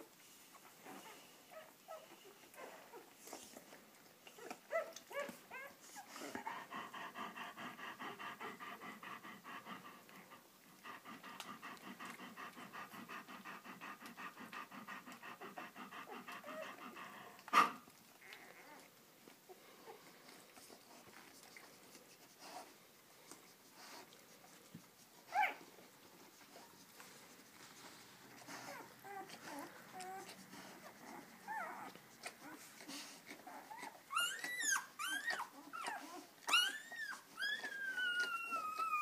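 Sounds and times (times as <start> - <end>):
dog panting: 0.5 - 18.8, 19.5 - 39.0
puppies squeaking: 33.5 - 39.0.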